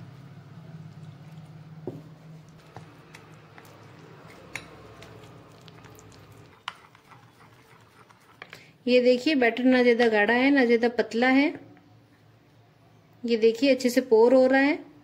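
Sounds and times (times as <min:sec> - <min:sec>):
spoon stirring batter: 0:00.8 - 0:10.1.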